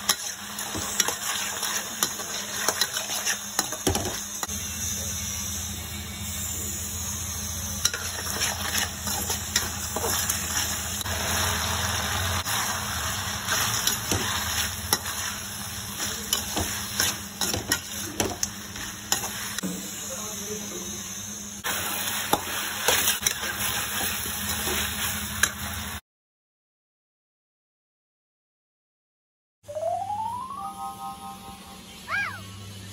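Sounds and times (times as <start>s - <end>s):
metal spatula scraping pan: 0.0s - 3.9s, 7.8s - 10.8s
chicken sizzling in pan: 0.0s - 26.0s.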